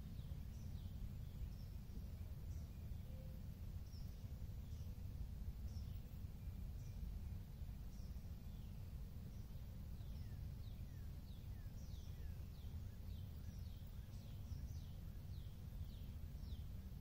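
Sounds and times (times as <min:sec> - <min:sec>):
bird chirping: 0:07.9 - 0:16.9.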